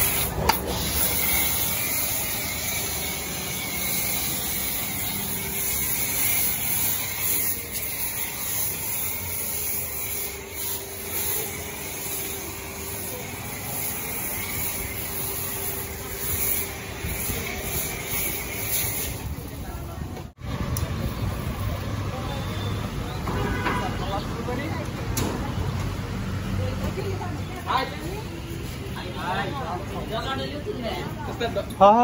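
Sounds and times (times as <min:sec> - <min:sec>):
pressure washer motor humming: 0:00.0 - 0:19.2
foam spray hissing: 0:00.0 - 0:19.5.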